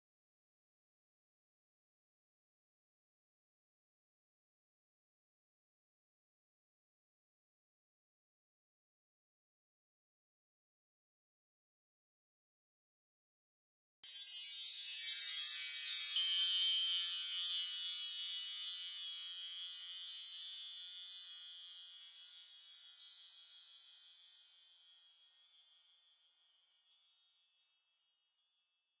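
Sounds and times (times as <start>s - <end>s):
high chimes tinkling: 14.0s - 29.0s.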